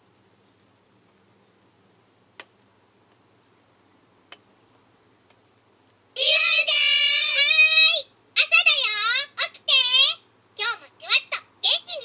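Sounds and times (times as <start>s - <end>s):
alarm clock child-like voice: 6.2s - 12.0s.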